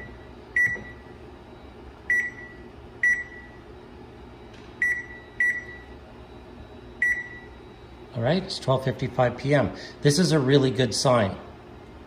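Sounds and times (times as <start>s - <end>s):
microwave keypad beeps: 0.0s - 1.1s, 2.1s - 3.6s, 4.8s - 6.0s, 7.0s - 7.6s.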